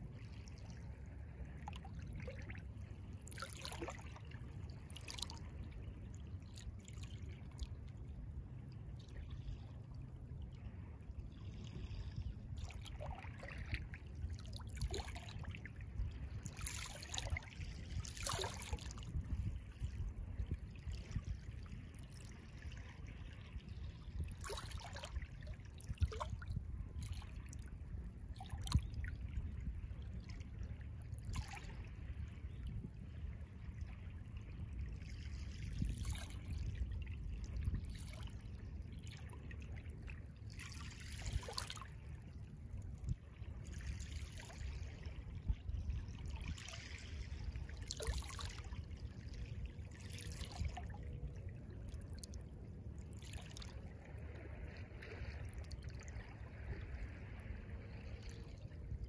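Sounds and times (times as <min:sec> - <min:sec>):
small waves lapping: 0:00.0 - 0:59.0
soft splash: 0:00.1 - 0:08.2, 0:11.3 - 0:59.0
steady low rumble: 0:48.6 - 0:59.0.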